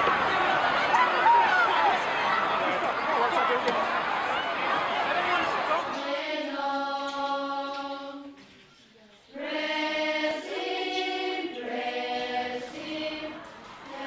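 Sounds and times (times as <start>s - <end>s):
children's choir singing: 4.8s - 8.4s, 9.3s - 14.0s.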